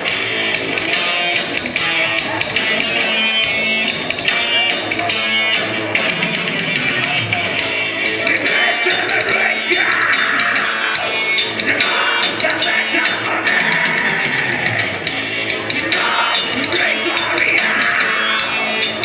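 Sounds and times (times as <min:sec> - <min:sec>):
bass guitar: 0:00.0 - 0:19.0
distorted electric guitars: 0:00.0 - 0:19.0
fast dense drumming: 0:04.9 - 0:19.0.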